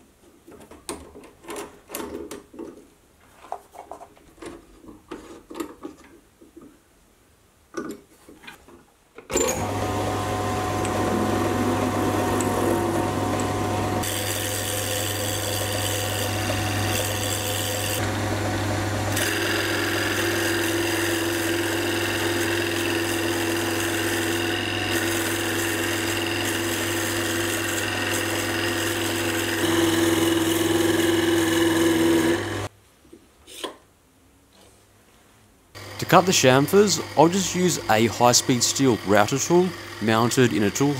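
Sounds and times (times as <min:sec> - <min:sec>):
lathe motor humming: 0:09.4 - 0:32.7, 0:35.8 - 0:40.9.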